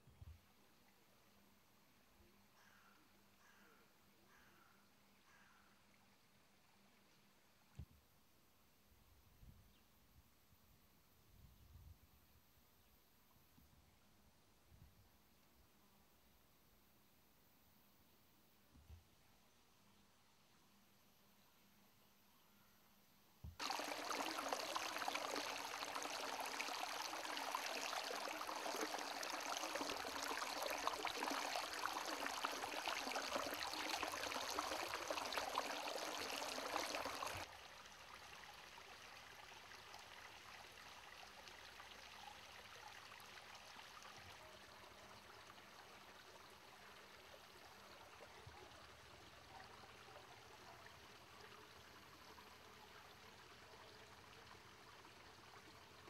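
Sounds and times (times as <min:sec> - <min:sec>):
water splashing over rocks: 0:23.6 - 0:37.4.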